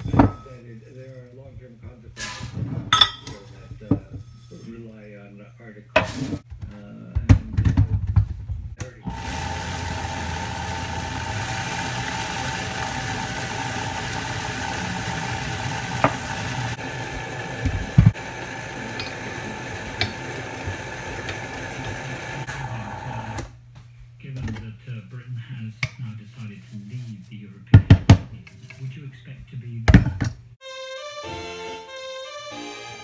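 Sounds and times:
blender grinding: 9.0s - 23.5s
blender jar clunks: 9.1s - 22.7s.

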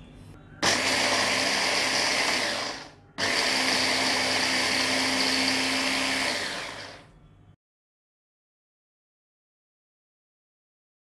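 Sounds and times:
electric hand blender chopping: 0.6s - 7.0s.

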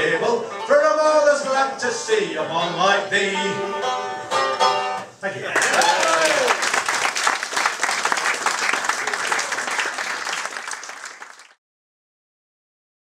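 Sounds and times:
audience applauding: 5.6s - 11.6s.

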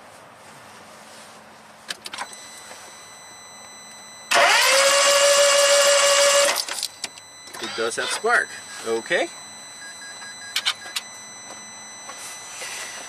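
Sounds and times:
car engine cranking: 4.2s - 8.4s.

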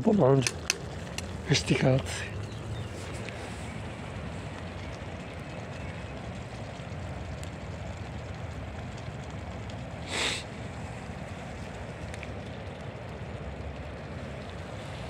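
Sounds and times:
wood fire crackling: 0.0s - 15.0s
short hiss: 10.0s - 10.5s.

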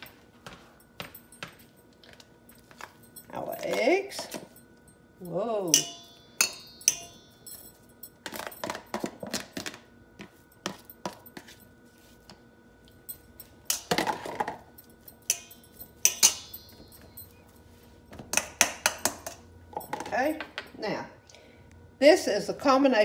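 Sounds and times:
utensil scraping and clinking in bowl: 9.6s - 20.2s.

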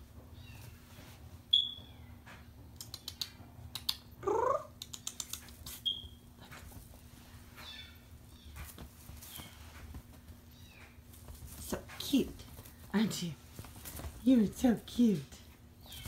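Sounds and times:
kitten mewing: 4.2s - 5.5s.

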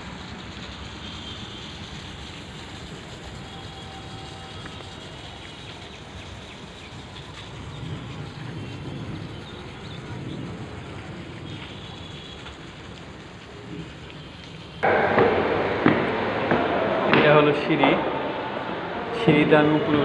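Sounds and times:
steady hiss: 0.0s - 18.5s
low rumble: 14.8s - 19.1s.

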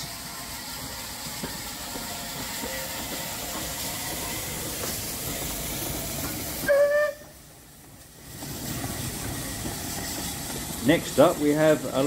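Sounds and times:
hiss of steam: 0.0s - 12.0s
steam whistle blast: 6.6s - 7.4s.

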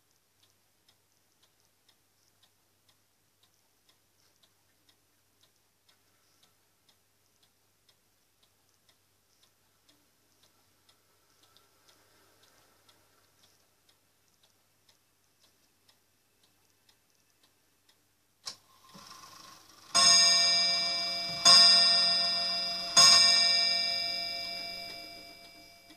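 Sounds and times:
pendulum clock ticking: 0.0s - 25.9s
clock mechanism click and whir: 0.1s - 25.9s
clock gong striking: 19.9s - 25.9s.

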